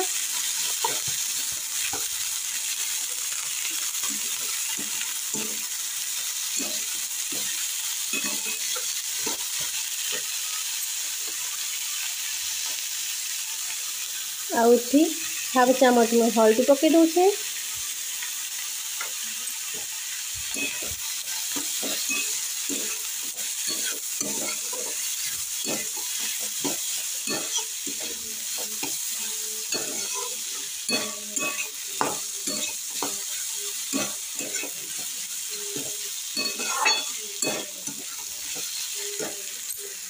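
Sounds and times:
vegetables sizzling in oil: 0:00.0 - 0:40.0
spatula scraping metal pan: 0:06.4 - 0:10.6, 0:20.5 - 0:40.0.

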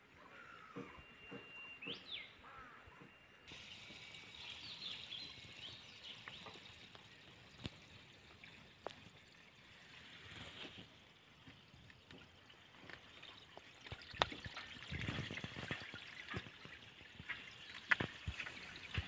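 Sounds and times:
birds chirping: 0:00.0 - 0:09.4
stream water trickling: 0:03.5 - 0:19.0.

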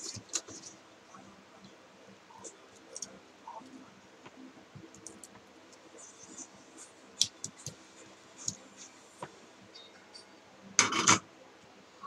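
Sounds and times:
small parts clicking and scratching: 0:00.0 - 0:00.8.

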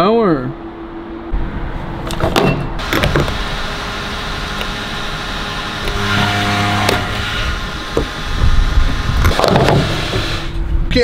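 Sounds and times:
steady hum: 0:02.7 - 0:10.9.

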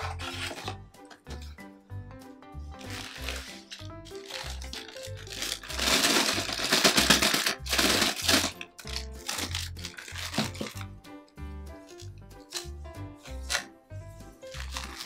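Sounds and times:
background music: 0:00.0 - 0:15.0
plastic bag crinkling: 0:02.8 - 0:10.9, 0:14.5 - 0:15.0.

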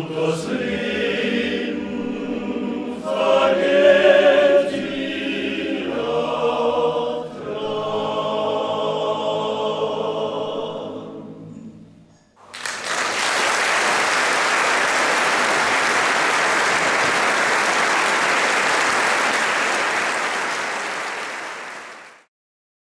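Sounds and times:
audience applauding: 0:12.4 - 0:22.3.

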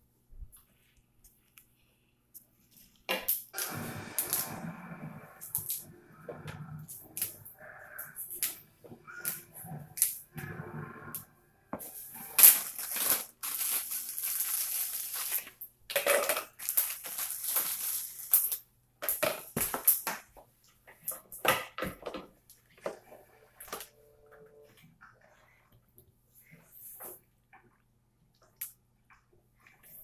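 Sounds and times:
plastic bag rustling: 0:11.8 - 0:15.6, 0:16.6 - 0:18.3.

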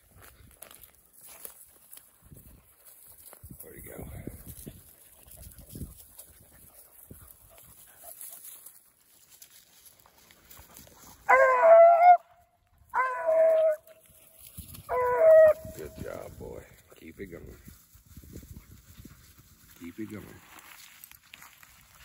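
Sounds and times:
faint rustling in brush: 0:00.0 - 0:11.4, 0:13.4 - 0:22.0
hound baying: 0:11.1 - 0:14.1, 0:14.8 - 0:15.8.

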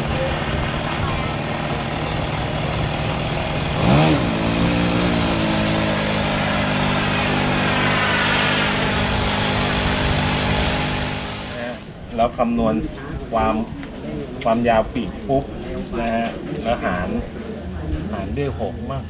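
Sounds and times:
model airplane engine droning: 0:00.0 - 0:12.0.

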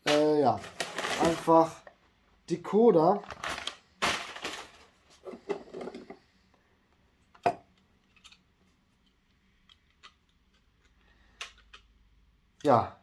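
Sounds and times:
rustling in cardboard box: 0:00.6 - 0:01.5.

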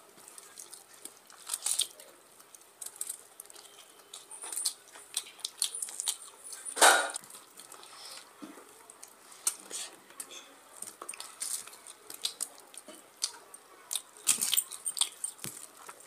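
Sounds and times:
chewing: 0:00.0 - 0:16.0
fingers squishing through rice: 0:00.0 - 0:16.0
lip smacks: 0:11.0 - 0:16.0.

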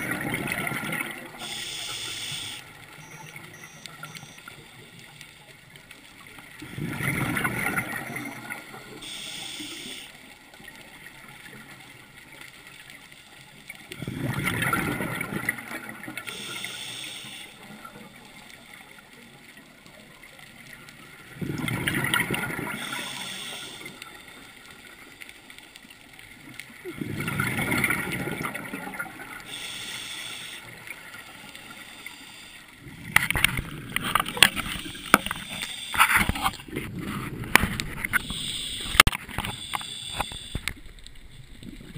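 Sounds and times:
rumbling bubbles exhaled underwater: 0:00.0 - 0:01.5, 0:06.2 - 0:09.2, 0:13.6 - 0:16.3, 0:17.6 - 0:25.1, 0:26.3 - 0:29.6, 0:32.7 - 0:41.9
regulator inhalation hiss: 0:01.4 - 0:02.6, 0:09.0 - 0:10.2, 0:16.3 - 0:17.6, 0:22.7 - 0:24.0, 0:29.4 - 0:30.8, 0:31.8 - 0:32.7, 0:34.7 - 0:36.2, 0:38.2 - 0:40.7.

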